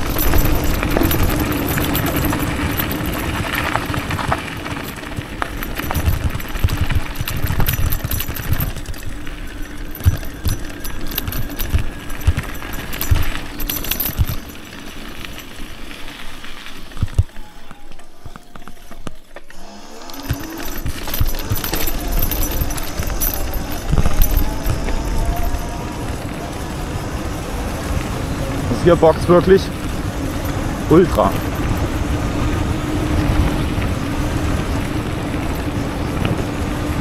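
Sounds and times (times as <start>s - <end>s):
bike rattling over bumps: 0.0s - 37.0s
tyres on gravel: 0.0s - 37.0s
electric motor whine: 19.4s - 28.6s.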